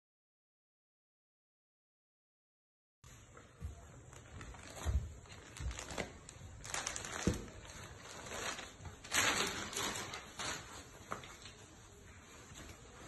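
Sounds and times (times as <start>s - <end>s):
fabric rustling: 4.0s - 13.0s.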